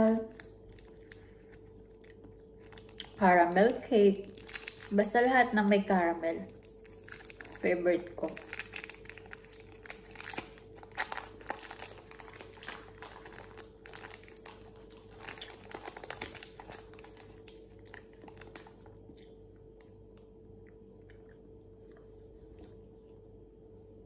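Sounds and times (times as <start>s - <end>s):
foil wrapper crinkling: 0.0s - 19.0s.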